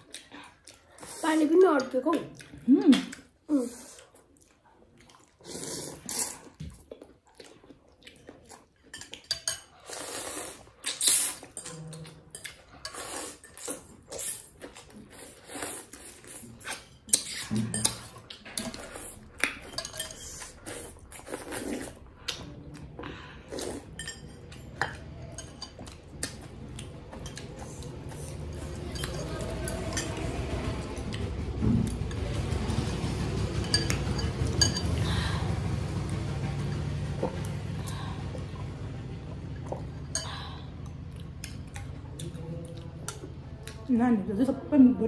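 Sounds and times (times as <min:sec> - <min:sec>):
eating sounds: 0:00.0 - 0:32.4, 0:37.2 - 0:43.9
cutlery clinking on glass bowls: 0:08.8 - 0:09.8, 0:17.2 - 0:18.9, 0:19.6 - 0:20.4, 0:24.0 - 0:26.0, 0:33.6 - 0:34.9.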